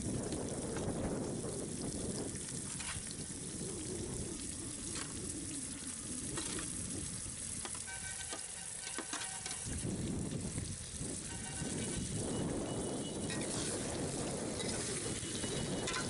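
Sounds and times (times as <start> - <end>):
small crackles and pops: 0.0 - 12.0
chicken sizzling in hot oil: 0.0 - 16.0.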